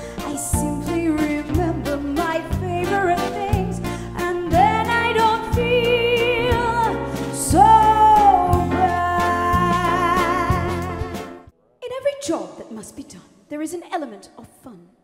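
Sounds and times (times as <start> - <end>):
small live band: 0.0 - 11.5
woman singing with vibrato: 0.2 - 11.3
bass guitar notes: 0.6 - 11.5.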